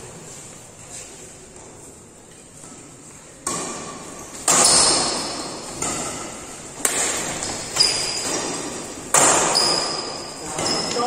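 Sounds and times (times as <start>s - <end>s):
rackets hitting shuttlecock: 3.4s - 11.0s.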